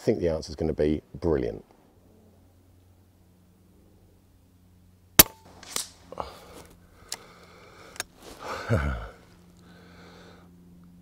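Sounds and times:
air rifle shot crack: 5.2 - 6.0
rifle action clicks: 5.2 - 6.0.

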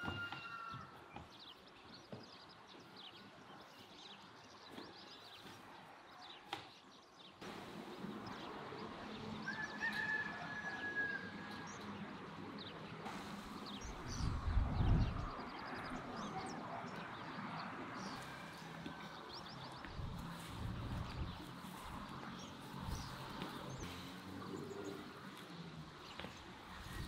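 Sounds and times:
rooster crowing: 0.0 - 1.0, 9.4 - 11.8
small birds chirping: 0.0 - 10.9, 11.5 - 27.0.

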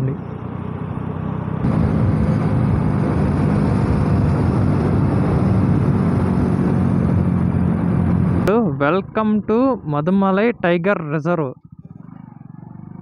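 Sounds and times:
motorcycle engine running: 0.0 - 8.5, 11.5 - 13.0
wind rushing over microphone: 1.6 - 10.0.

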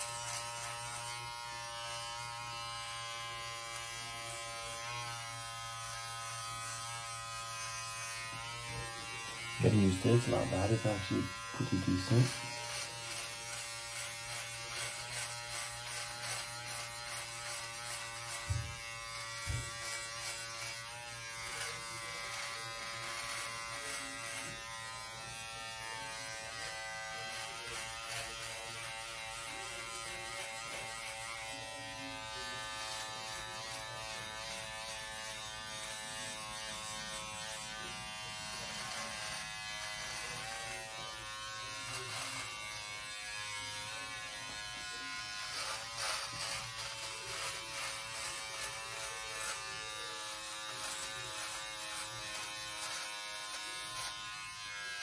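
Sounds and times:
electric shaver buzzing: 0.0 - 55.0.

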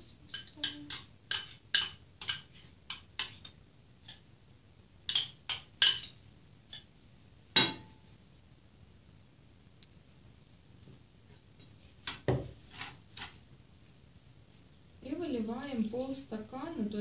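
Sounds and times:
metal spoon clinking glass bowl: 0.3 - 4.2, 5.1 - 6.9
spoon knocking enamel basin: 0.3 - 4.2, 5.1 - 6.9, 7.6 - 8.0.

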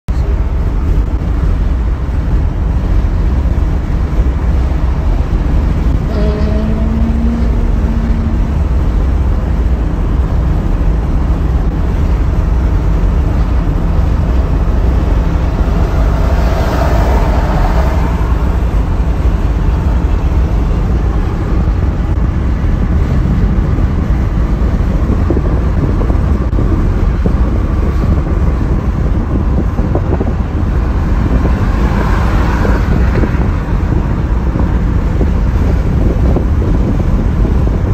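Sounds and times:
car road noise: 0.1 - 37.9
rush of passing vehicle: 0.4 - 37.9
short pitched tone: 6.0 - 8.8.

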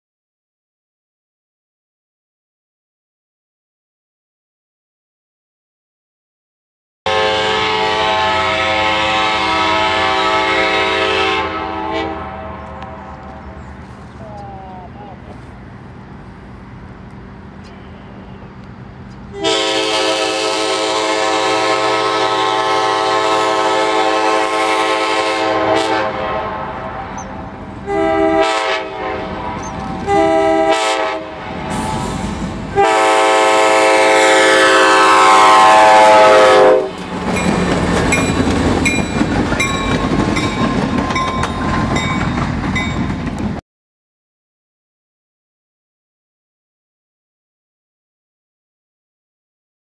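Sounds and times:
train horn blasts: 7.1 - 13.5, 19.3 - 31.7, 32.7 - 37.0
rumble of passing train: 7.1 - 43.6
wheels clicking over rail joints: 36.9 - 43.6.

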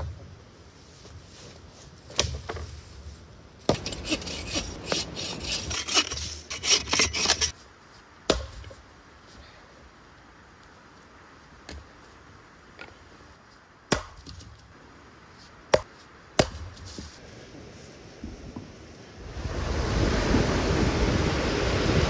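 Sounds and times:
axe strike into wood: 8.3 - 8.8, 13.9 - 14.5, 15.8 - 17.1.

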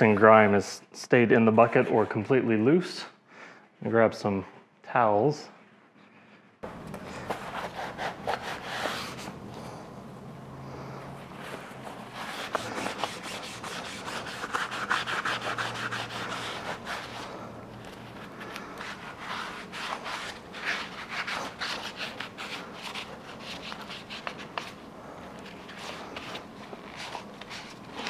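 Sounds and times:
towel rubbing metal: 11.3 - 24.6.

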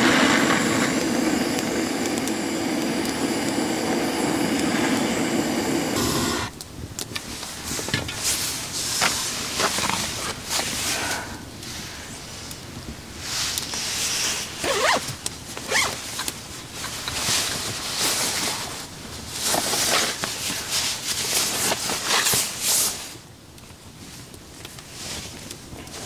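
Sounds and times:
nylon jacket rustling: 14.3 - 15.0, 15.7 - 15.9
zip being undone: 14.6 - 15.0.

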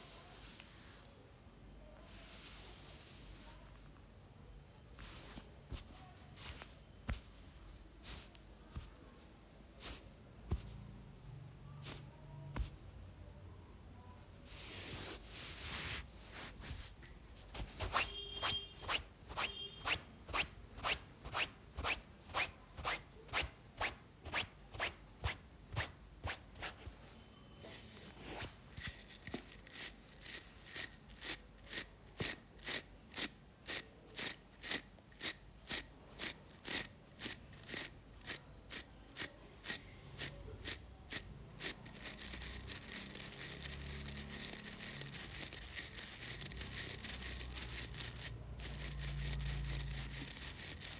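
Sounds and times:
head massager rustling through hair: 14.5 - 19.1.

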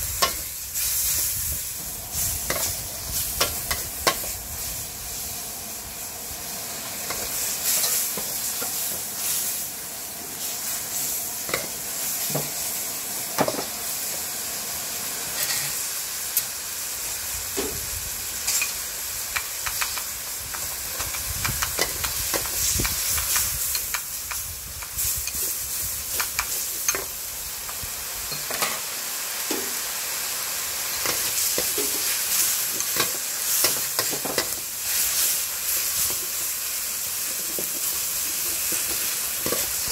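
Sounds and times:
noodles sizzling in a wok: 0.0 - 39.9
metal spatula scraping a wok: 15.4 - 15.8.

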